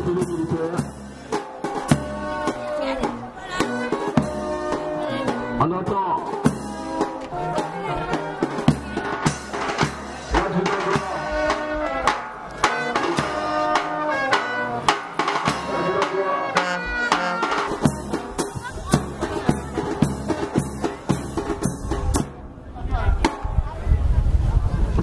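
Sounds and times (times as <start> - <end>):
steady drum beat: 0.0 - 22.6
band music: 0.0 - 23.9
brass playing: 1.6 - 21.4.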